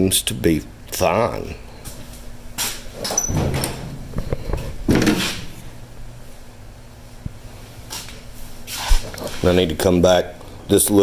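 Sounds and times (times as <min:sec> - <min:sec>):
footsteps: 0:07.8 - 0:09.7.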